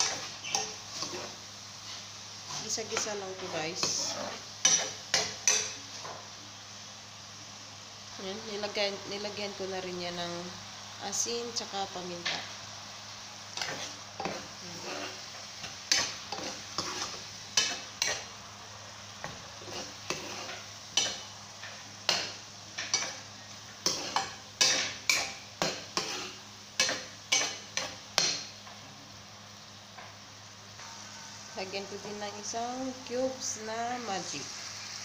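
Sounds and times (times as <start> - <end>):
metal spatula scraping frying pan: 0.0 - 5.8, 13.6 - 18.3, 19.2 - 28.5
food sizzling in oil: 0.0 - 35.0.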